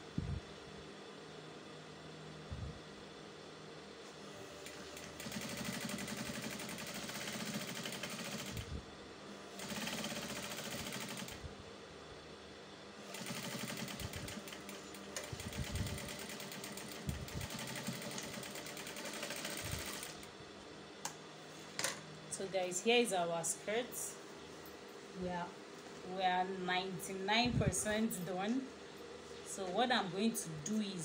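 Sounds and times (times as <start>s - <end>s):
sewing machine stitching: 4.6s - 8.6s, 13.1s - 20.2s.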